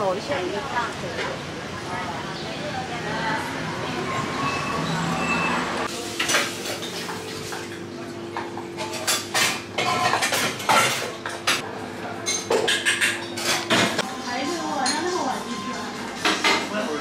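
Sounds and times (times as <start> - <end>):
cups and cutlery clinking: 8.4 - 11.6, 12.2 - 14.0.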